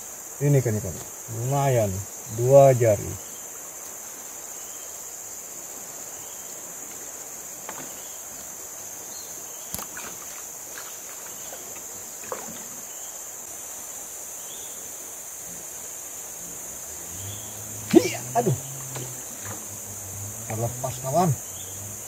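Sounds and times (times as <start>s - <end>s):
high-pitched insect chorus: 0.0s - 22.0s
light knocks in a boat: 7.6s - 8.2s.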